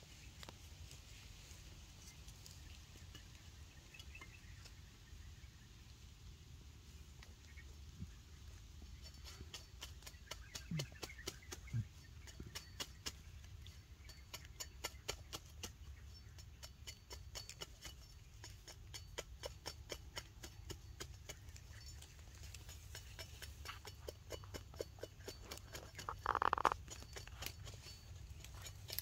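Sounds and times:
machete shaving wooden stick: 0:22.4 - 0:29.0.

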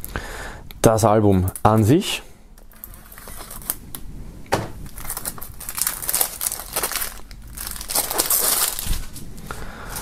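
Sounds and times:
shrink-wrap crinkling and crackling: 0:02.7 - 0:04.1, 0:04.8 - 0:10.0.

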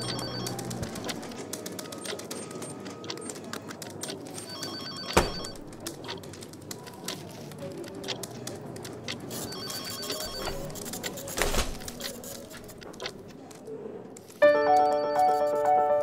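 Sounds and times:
telephone ringing: 0:00.0 - 0:06.2, 0:09.3 - 0:10.8, 0:14.4 - 0:16.0
small clicks and clatter: 0:05.7 - 0:14.4.

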